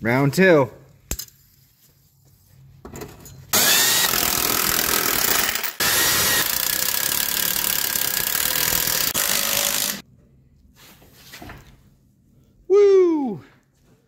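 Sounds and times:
impact wrench hammering: 0:03.6 - 0:10.0.

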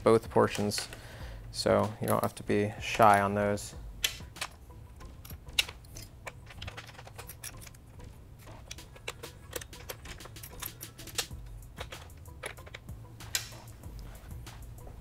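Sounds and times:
faint background music: 0:00.0 - 0:15.0
hands handling plastic parts: 0:04.0 - 0:15.0.

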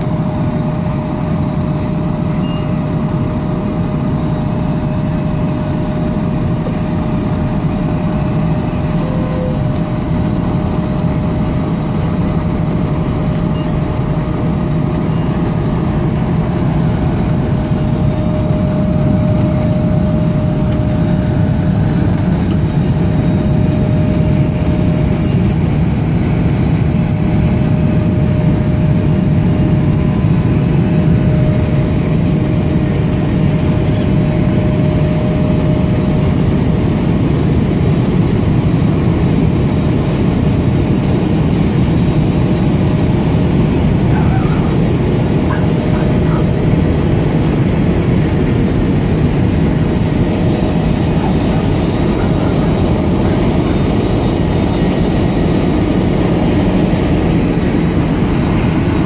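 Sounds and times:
high steady whine: 0:00.0 - 0:59.0
milling machine drone: 0:00.0 - 0:59.0.

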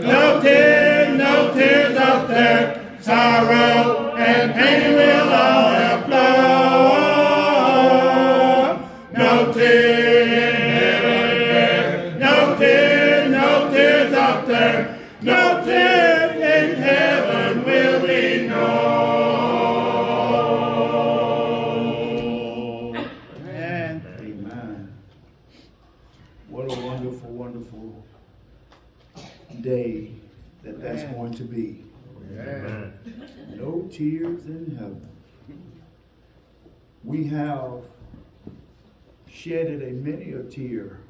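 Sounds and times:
congregation singing a hymn: 0:00.0 - 0:24.4.

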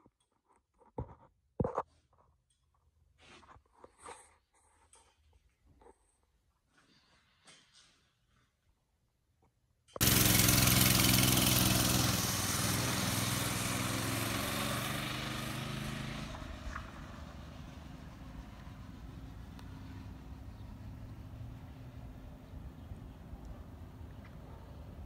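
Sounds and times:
mini bike engine running: 0:10.0 - 0:18.6.

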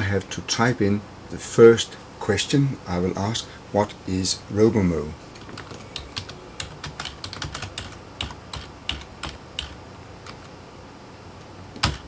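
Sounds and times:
computer keyboard typing: 0:05.4 - 0:10.5, 0:11.8 - 0:12.0.

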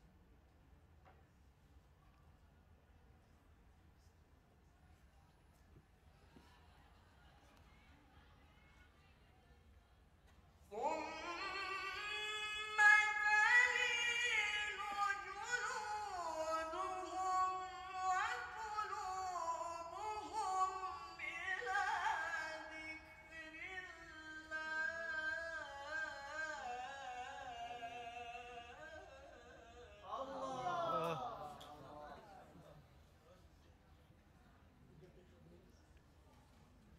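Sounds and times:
man reciting melodically into microphone: 0:10.7 - 0:32.8.

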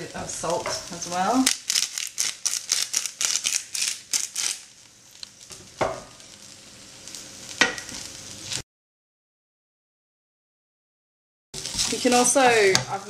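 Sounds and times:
utensil scratching frying rice: 0:00.0 - 0:05.4, 0:11.6 - 0:13.0.

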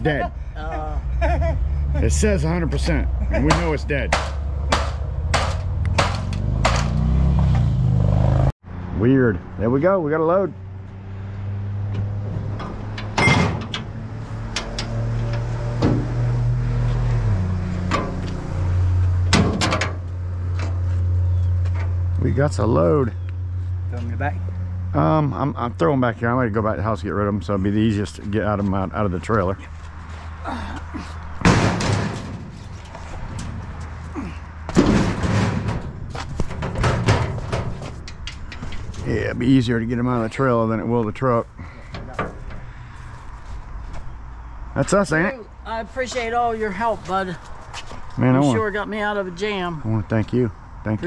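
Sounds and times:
sharp knocks and clicks: 0:03.5 - 0:07.7, 0:19.3 - 0:20.8
scrap metal clattering into trailer: 0:12.5 - 0:16.1, 0:31.4 - 0:33.6, 0:34.7 - 0:39.1
loud clatter: 0:34.7 - 0:39.0.

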